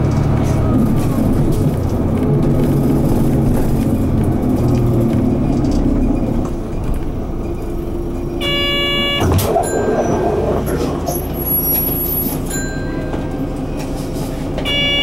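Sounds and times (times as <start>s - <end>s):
bus diesel engine running: 0.0s - 15.0s.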